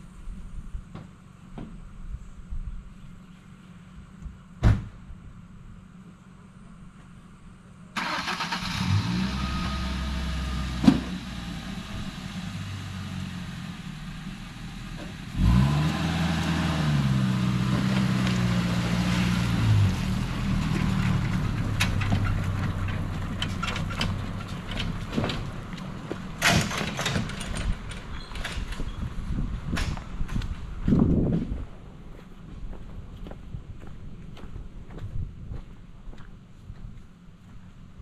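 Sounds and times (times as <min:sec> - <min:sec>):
engine idling and revving: 0:08.0 - 0:28.7.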